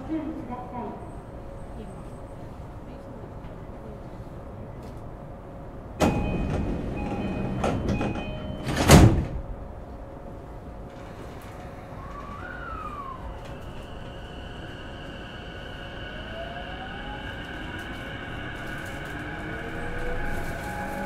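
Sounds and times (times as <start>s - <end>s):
door chime tones: 6.0s - 9.0s
train doors shutting thud: 6.0s - 9.6s.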